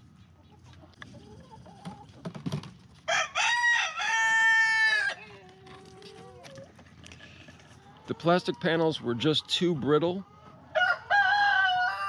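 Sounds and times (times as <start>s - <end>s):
rooster crowing: 3.1s - 5.2s, 10.7s - 12.0s.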